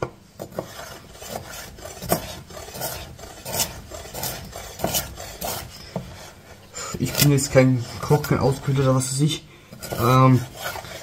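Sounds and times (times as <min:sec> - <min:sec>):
knife chopping on wooden board: 0:00.0 - 0:06.3.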